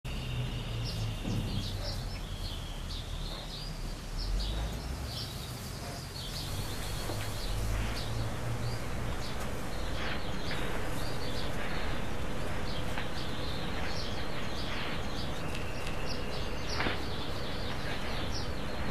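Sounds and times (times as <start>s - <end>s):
small birds chirping: 0.1s - 18.9s
low background rumble: 5.9s - 18.9s.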